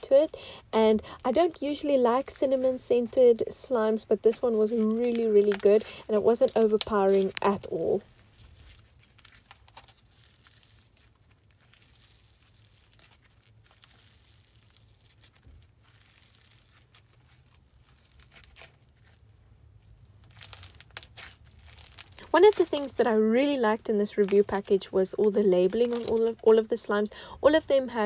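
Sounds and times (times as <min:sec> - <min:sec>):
slime crackling and popping: 0:04.2 - 0:19.2, 0:20.0 - 0:23.0, 0:23.8 - 0:26.4.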